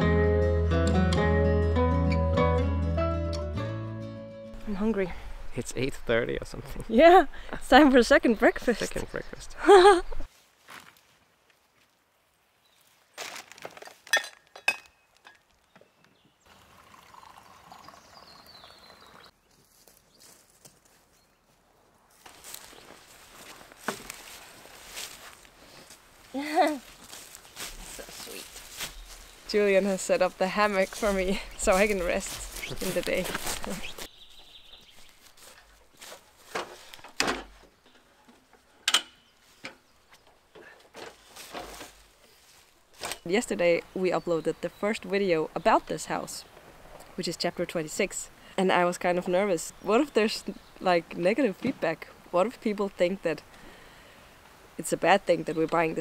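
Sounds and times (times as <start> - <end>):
liquid pouring into mug: 16.5 - 19.2
metal stand clicking and clanking: 38.8 - 39.8.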